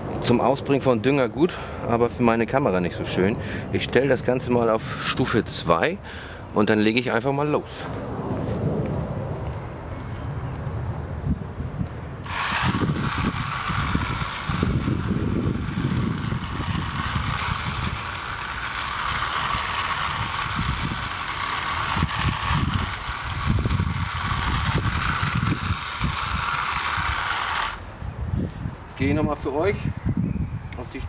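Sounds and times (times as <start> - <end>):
electric motor whirring: 12.2 - 28.0.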